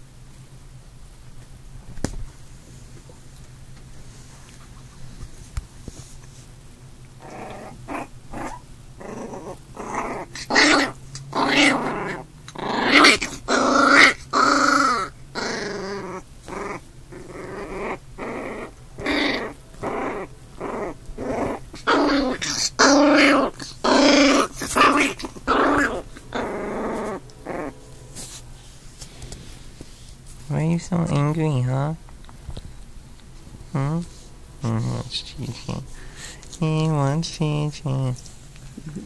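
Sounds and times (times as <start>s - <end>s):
puppies growling: 7.1s - 27.9s.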